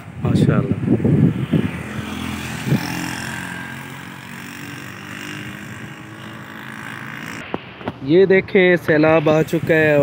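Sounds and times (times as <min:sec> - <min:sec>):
vehicle engine running: 0:01.4 - 0:07.5.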